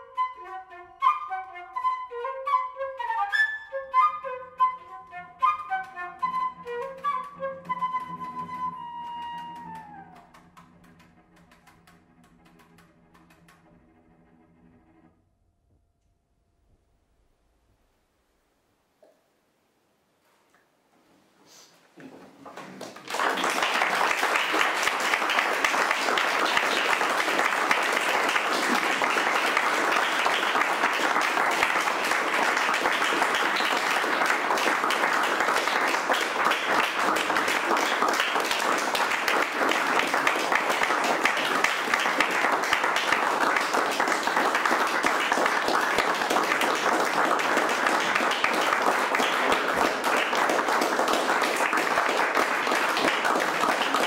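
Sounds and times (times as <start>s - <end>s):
audience applause: 6.3s - 12.8s, 22.4s - 54.0s.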